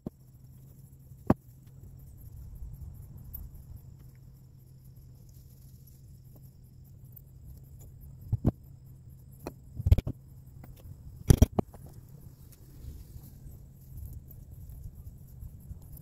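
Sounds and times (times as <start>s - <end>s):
faint low hum: 0.0s - 16.0s
sharp clicks and knocks: 7.8s - 8.6s, 9.4s - 12.0s.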